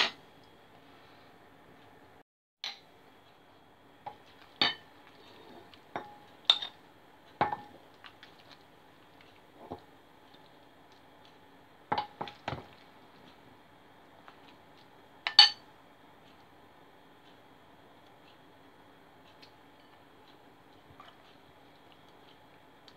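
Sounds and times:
metal spoon clinking on dishes: 6.0s - 6.8s.

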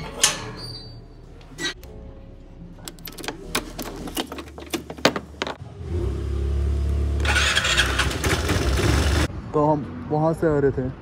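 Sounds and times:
scooter engine running: 5.8s - 9.3s.

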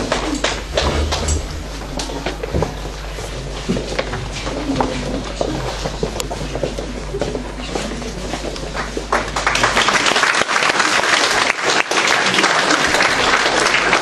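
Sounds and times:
audience applauding: 0.0s - 2.8s, 8.8s - 14.0s.

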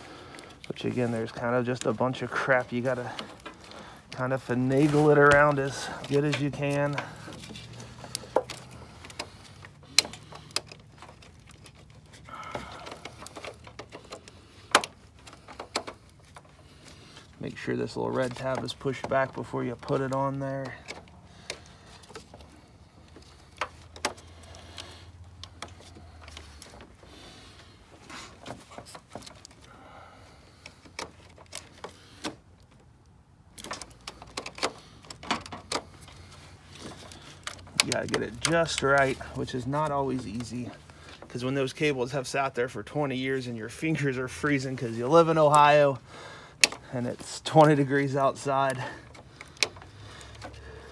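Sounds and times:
clicks and knocks of plastic clips: 0.3s - 17.4s, 18.1s - 41.9s, 44.5s - 50.9s
plastic connector clicks and rattles: 5.2s - 16.6s, 30.6s - 38.9s, 46.6s - 46.8s.

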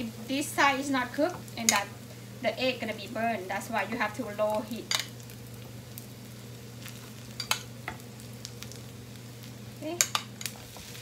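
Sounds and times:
pancake and egg sizzling in a pan: 0.0s - 11.0s
metal spoon clicking on pan: 7.4s - 7.7s, 10.0s - 10.5s.

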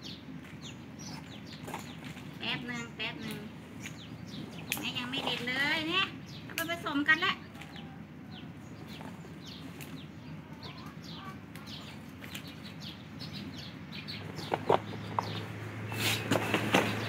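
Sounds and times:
chickens peeping: 7.4s - 17.0s.

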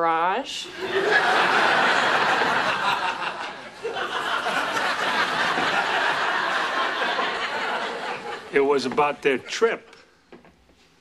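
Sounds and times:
studio audience laughing: 0.7s - 8.6s.

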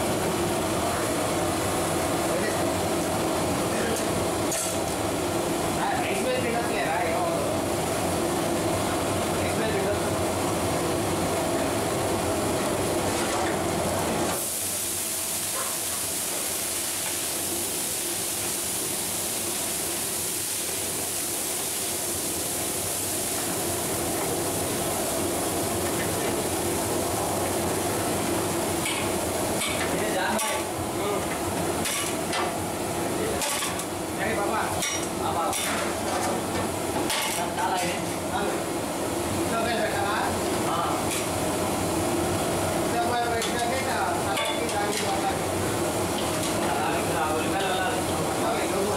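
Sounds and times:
water boiling in a pot: 0.0s - 48.9s
gas burner hissing: 12.6s - 48.9s.

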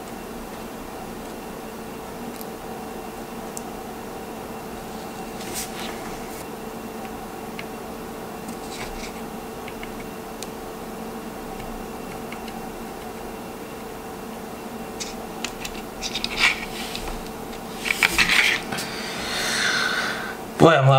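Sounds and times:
room hum: 0.0s - 20.9s
soldering iron ticks and scratches: 8.5s - 10.6s, 11.4s - 14.0s, 15.0s - 17.7s.

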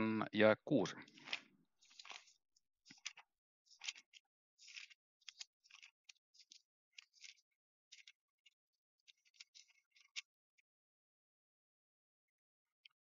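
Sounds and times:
faint rustling or scratching: 0.8s - 10.3s.

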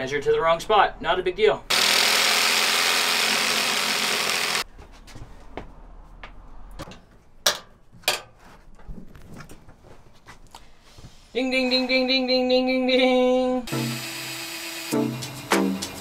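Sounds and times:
electric saw cutting countertop: 1.7s - 4.6s, 13.7s - 15.5s.

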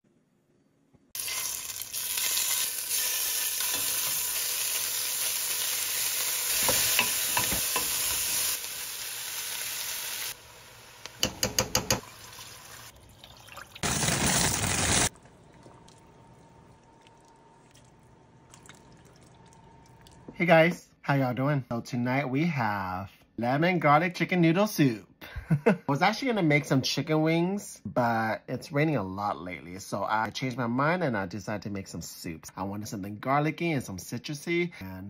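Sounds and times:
chicken wings sizzling in a pot: 1.2s - 13.2s, 13.8s - 15.1s.

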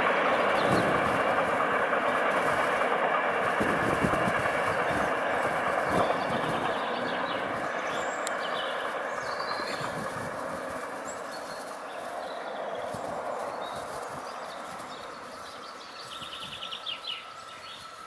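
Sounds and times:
train wheels on rails: 0.0s - 18.0s.

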